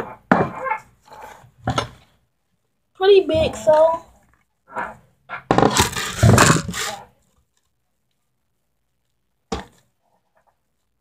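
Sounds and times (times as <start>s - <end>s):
board scraping across tabletop: 5.5s - 7.1s.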